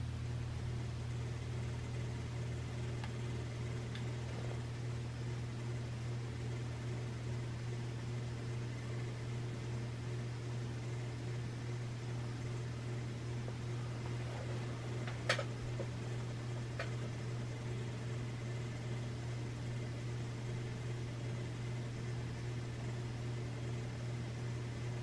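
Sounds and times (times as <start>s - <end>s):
fan blades whooshing: 0.0s - 5.7s, 12.1s - 19.7s
ceiling fan motor hum and buzz: 0.0s - 25.0s.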